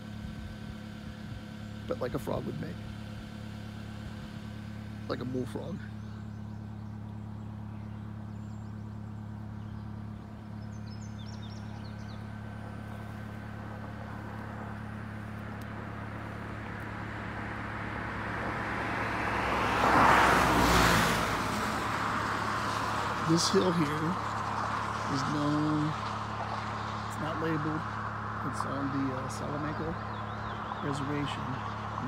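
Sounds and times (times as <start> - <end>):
car passing by: 17.6 - 32.0.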